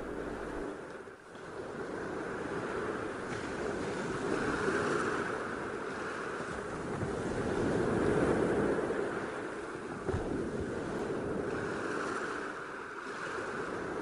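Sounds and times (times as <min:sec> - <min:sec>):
ocean surf breaking: 0:00.0 - 0:00.9.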